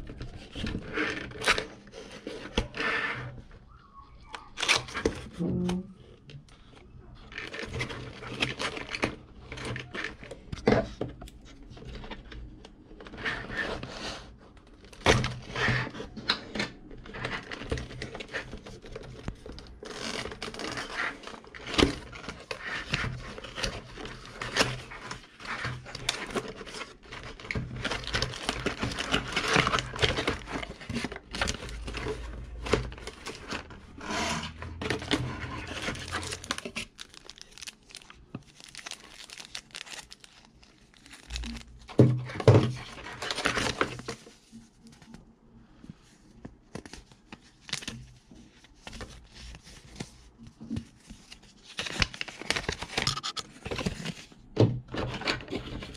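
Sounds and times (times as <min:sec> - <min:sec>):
cardboard scraping and crinkling: 0:00.0 - 0:03.5, 0:14.9 - 0:45.2, 0:46.7 - 0:55.9.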